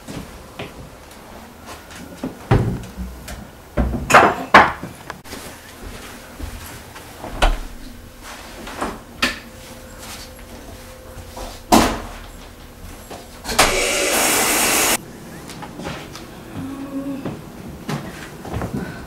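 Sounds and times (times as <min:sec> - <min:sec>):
shower water spraying: 0:13.6 - 0:15.0.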